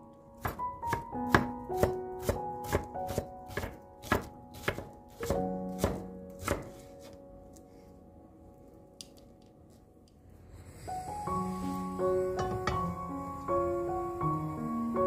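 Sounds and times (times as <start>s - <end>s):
soft background music: 0.0s - 15.0s
knife chopping on wooden board: 0.4s - 7.2s.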